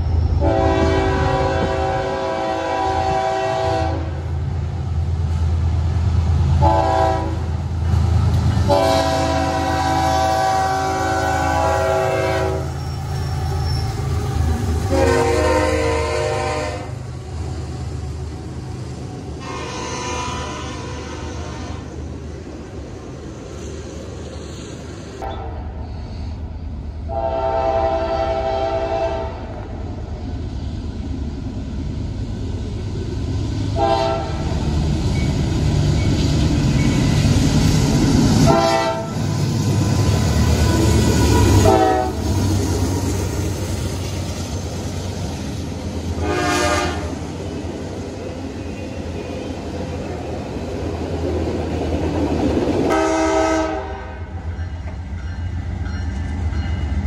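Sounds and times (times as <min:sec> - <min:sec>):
freight train engine and rail rumble: 0:00.0 - 0:57.0
train air horn blasts: 0:00.4 - 0:04.3, 0:06.6 - 0:07.5, 0:08.6 - 0:17.0, 0:19.4 - 0:22.0, 0:25.2 - 0:26.3, 0:27.1 - 0:29.6, 0:33.8 - 0:34.5, 0:38.4 - 0:39.2, 0:40.6 - 0:42.3, 0:46.2 - 0:47.2, 0:52.9 - 0:54.4.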